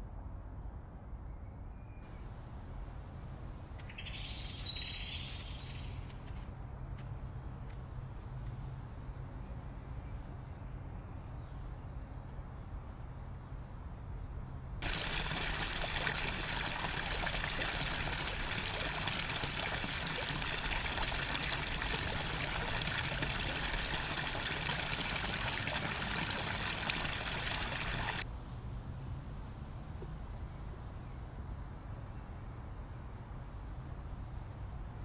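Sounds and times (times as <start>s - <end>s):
water splashing into a pool: 14.8s - 28.3s.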